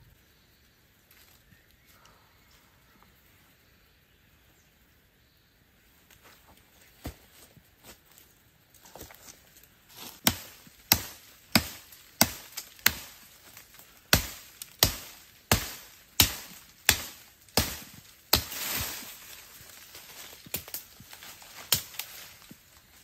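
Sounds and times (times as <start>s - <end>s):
leaves and twigs rustling: 0.0s - 4.6s, 5.8s - 23.0s
machete chopping brush: 10.0s - 19.2s, 19.9s - 22.4s.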